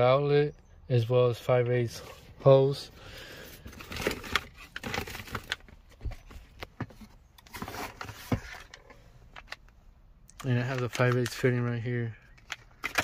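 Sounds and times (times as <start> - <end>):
rummaging in cardboard box: 3.6 - 8.9.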